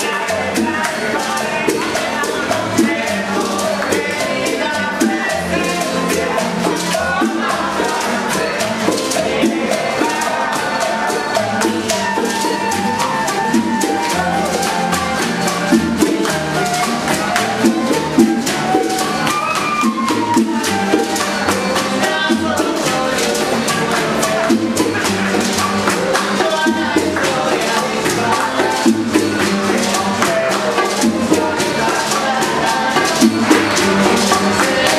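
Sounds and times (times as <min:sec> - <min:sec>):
maracas shaking: 0:00.0 - 0:34.9
people singing: 0:00.0 - 0:34.9
strummed acoustic guitars: 0:00.0 - 0:34.9
upright bass: 0:00.0 - 0:34.9
flute: 0:10.0 - 0:22.6.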